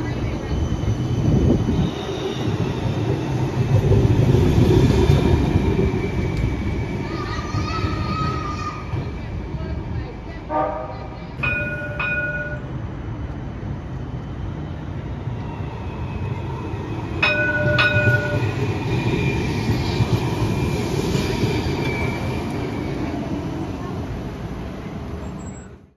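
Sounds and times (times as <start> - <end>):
streetcar running rumble: 0.0 - 25.9
streetcar bell ding-ding: 10.9 - 12.9, 17.2 - 18.8.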